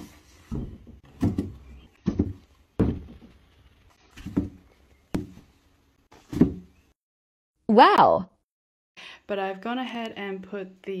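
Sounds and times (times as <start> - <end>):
dull thuds on wooden shelf: 0.5 - 3.4, 4.2 - 5.5, 6.2 - 6.8.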